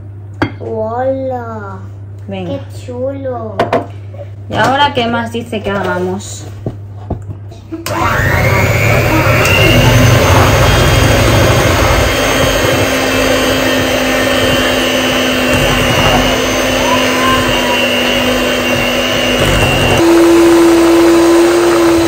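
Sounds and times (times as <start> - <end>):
electric hand mixer running: 7.9 - 22.0.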